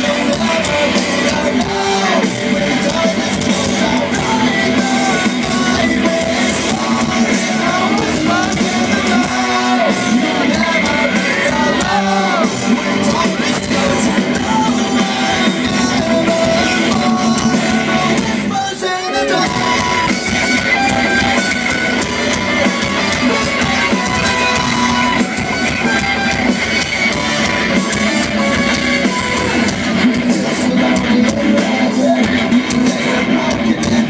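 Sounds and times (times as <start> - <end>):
live rock band playing: 0.0 - 34.0
person singing: 0.0 - 34.0.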